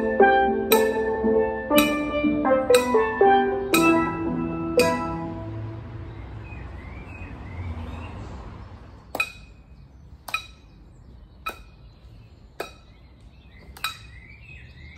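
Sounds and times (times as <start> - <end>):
steel pan chord: 0.0 - 6.1
birds chirping: 0.0 - 14.9.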